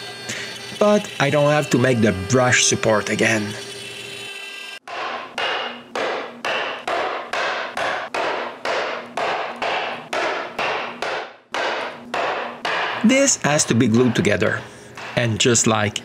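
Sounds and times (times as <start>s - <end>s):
cnc router running: 0.0s - 4.8s.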